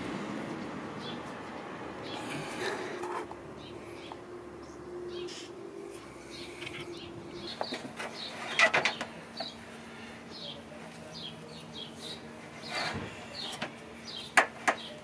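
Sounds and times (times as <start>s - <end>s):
faint steady hum: 2.0s - 14.8s
small birds chirping: 6.2s - 15.0s
parts knocking and rattling: 7.5s - 9.6s.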